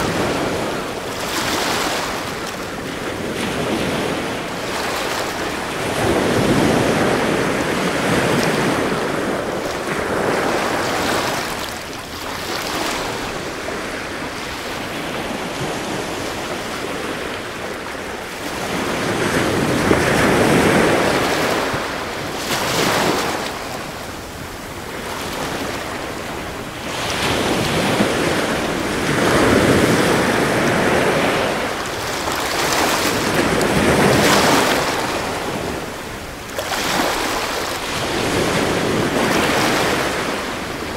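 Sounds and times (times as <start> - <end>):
ocean waves rolling in: 0.0 - 40.9.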